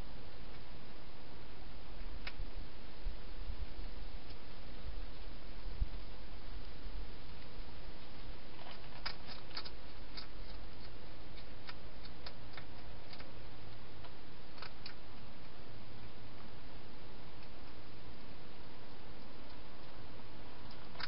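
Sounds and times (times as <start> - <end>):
steady background hiss: 0.0 - 21.0
hedgehog chewing clicks: 8.6 - 13.3, 14.0 - 15.3.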